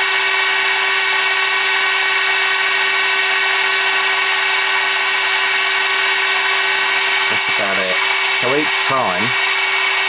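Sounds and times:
steady test tone from radio speaker: 0.0s - 10.0s
radio hiss: 6.4s - 9.4s.

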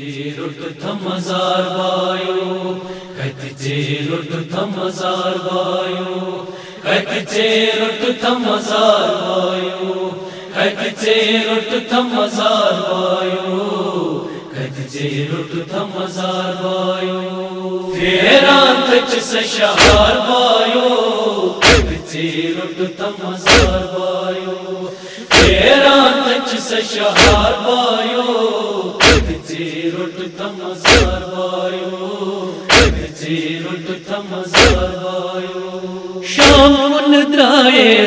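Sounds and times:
person chanting into microphone: 0.0s - 35.3s, 36.2s - 38.0s
crowd of men chanting: 0.0s - 36.8s
unison chest beating: 19.8s - 20.2s, 21.6s - 22.0s, 23.4s - 23.9s, 25.3s - 25.7s, 27.2s - 27.6s, 29.0s - 29.4s, 30.8s - 31.3s, 32.7s - 33.1s, 34.5s - 35.0s.

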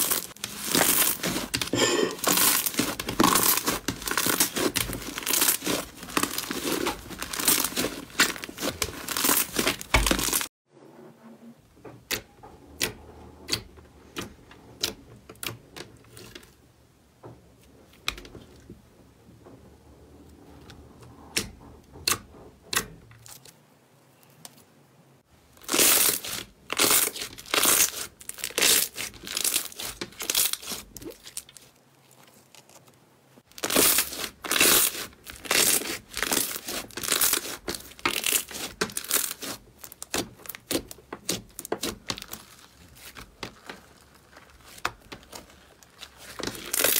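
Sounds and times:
slime crackling and crinkling: 0.0s - 10.5s, 25.4s - 46.9s.

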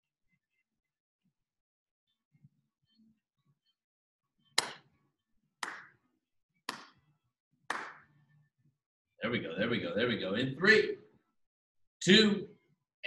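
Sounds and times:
hand claps: 4.6s - 5.0s, 5.6s - 6.0s, 6.6s - 7.1s, 7.7s - 8.2s.

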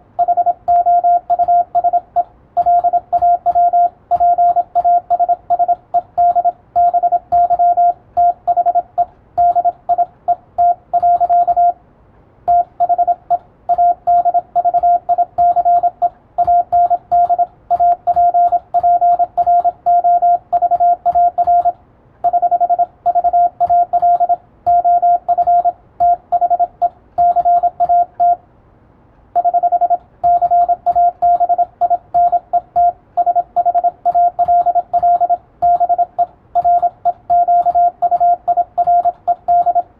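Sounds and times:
morse code tone: 0.2s - 11.8s, 12.5s - 28.4s, 29.4s - 39.9s.

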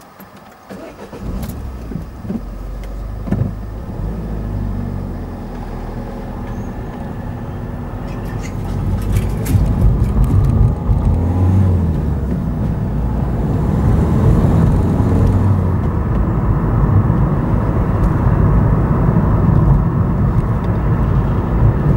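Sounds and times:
car engine and tyre rumble: 0.0s - 21.9s
wheels clicking over rails: 8.0s - 12.9s.

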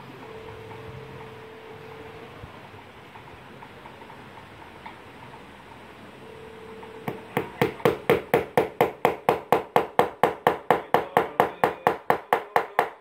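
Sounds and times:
hammer tapping a nail: 7.0s - 13.0s.

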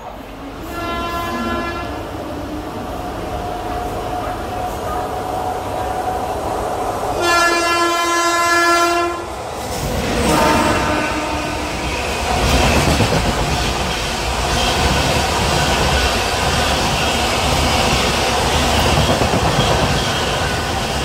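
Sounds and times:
train rushing past: 0.0s - 21.0s
train horn: 0.6s - 2.4s, 7.2s - 9.4s, 10.2s - 11.9s.

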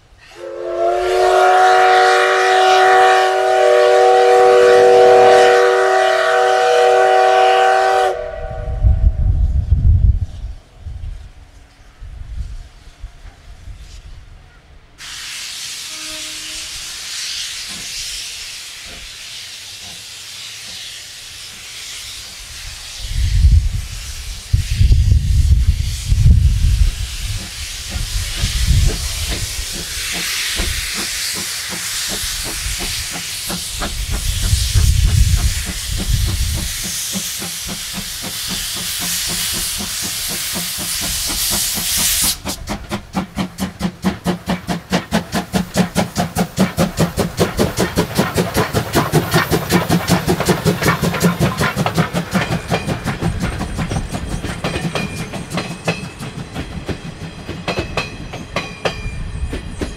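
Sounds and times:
steam locomotive exhaust beats: 0.0s - 59.9s
steam hiss from drain cocks: 15.0s - 56.4s.

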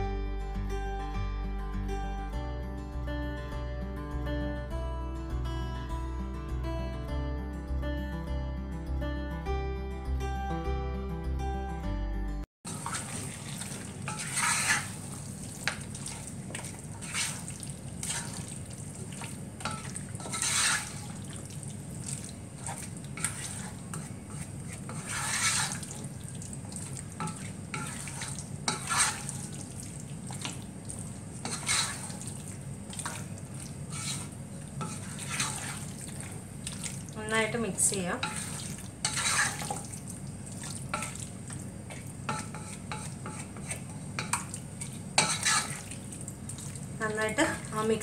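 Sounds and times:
steady frying: 12.6s - 48.0s
wooden spatula scraping pot: 12.7s - 21.5s, 22.1s - 29.6s, 31.3s - 40.0s, 40.6s - 46.0s.

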